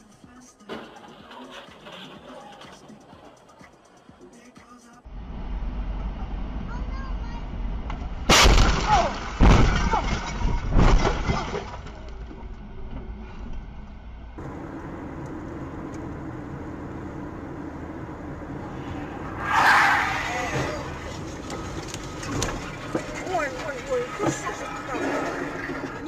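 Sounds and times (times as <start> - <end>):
car road and engine noise: 0.0 - 26.0
car crash impacts: 0.6 - 3.3, 7.9 - 12.4, 18.9 - 26.0.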